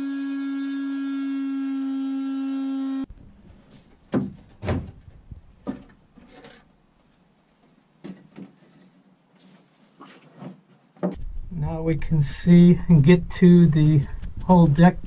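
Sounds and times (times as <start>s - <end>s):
oscillating multi-tool buzzing: 0.0s - 3.1s.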